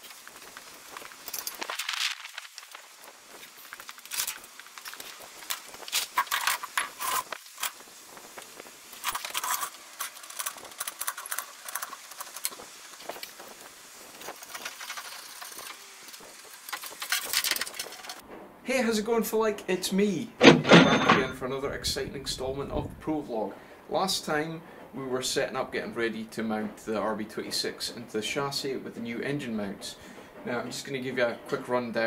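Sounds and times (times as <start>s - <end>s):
metal tools clinking and rattling: 9.0s - 12.6s, 16.9s - 18.2s, 20.4s - 21.4s
metal scraping: 20.4s - 21.7s.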